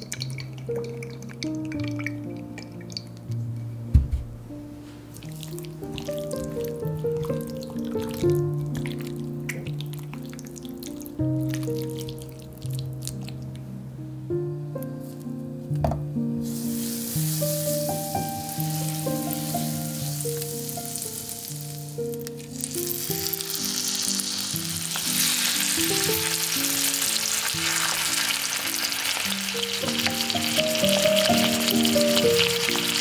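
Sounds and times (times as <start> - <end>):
soft background music: 0.0 - 33.0
chicken sizzling in frying pan: 16.4 - 33.0.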